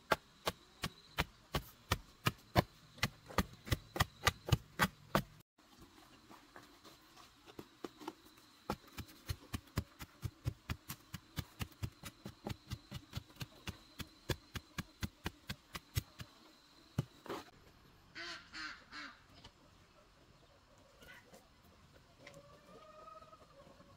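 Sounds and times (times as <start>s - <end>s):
wooden stick pounding soil: 0.0s - 5.4s, 7.5s - 16.4s
duck quacking: 18.2s - 19.2s.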